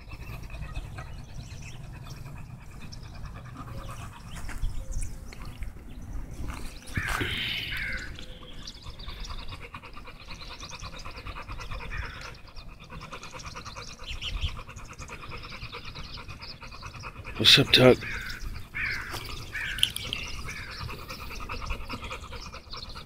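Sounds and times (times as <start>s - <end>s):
dog panting: 0.0s - 23.0s.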